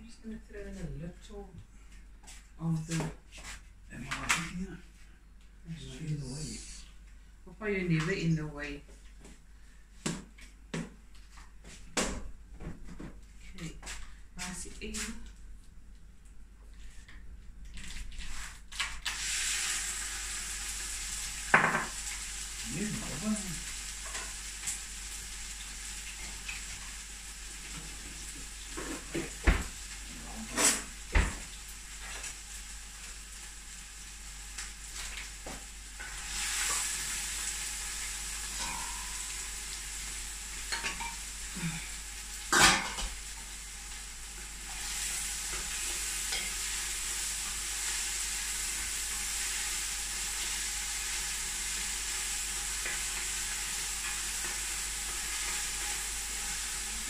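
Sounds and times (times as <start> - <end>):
onions sizzling in oil: 18.2 - 57.0.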